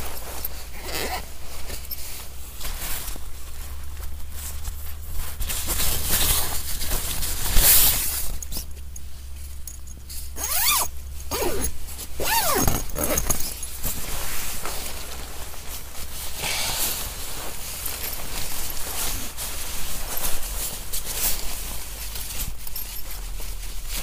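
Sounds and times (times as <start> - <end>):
rustling: 0.0 - 24.0
zipper pulled: 0.4 - 1.4, 10.4 - 13.8.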